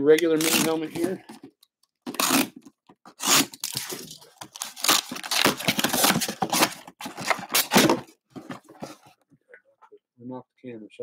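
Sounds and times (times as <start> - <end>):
tape and cardboard ripping: 0.2 - 1.4, 2.0 - 8.1
cardboard scraping and rustling: 2.1 - 9.2.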